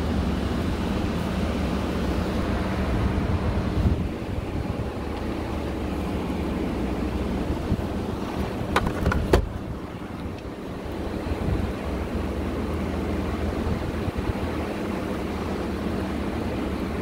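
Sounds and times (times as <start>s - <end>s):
vehicle rolling rumble: 0.0s - 17.0s
wind noise on microphone: 2.5s - 5.2s, 7.4s - 10.5s, 11.2s - 11.9s.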